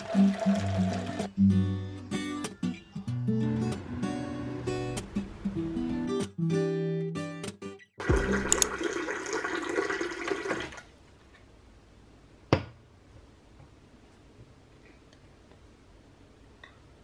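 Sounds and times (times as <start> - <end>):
water pouring into a mug: 0.0 - 1.3, 8.0 - 10.9.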